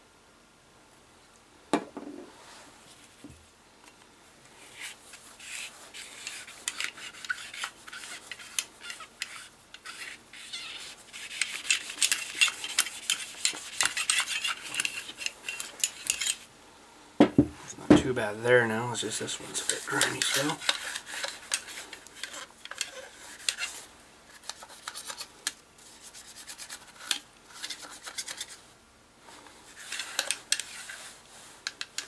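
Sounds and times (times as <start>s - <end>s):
metal rod scraping in barrel: 19.6s - 23.8s.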